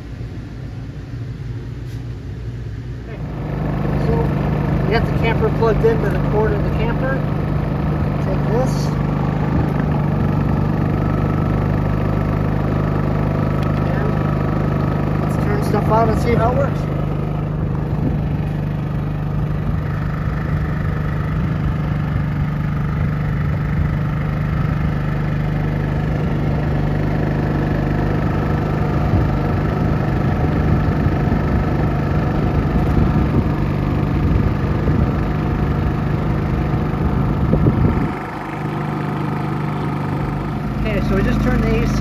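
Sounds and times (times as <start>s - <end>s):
generator engine humming: 0.0s - 42.0s.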